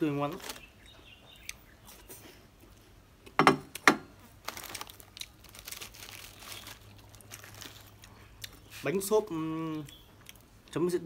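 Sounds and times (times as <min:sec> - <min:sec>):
plastic snack packet crinkling: 0:00.0 - 0:00.8, 0:04.4 - 0:08.6.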